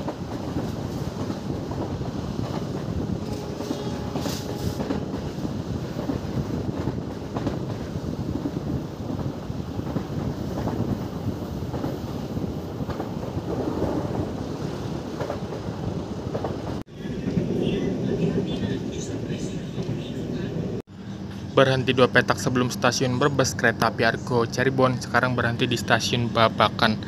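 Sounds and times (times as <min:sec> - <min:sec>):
wind buffeting microphone: 0:00.0 - 0:20.8
train wheels rumbling on rails: 0:00.0 - 0:27.0.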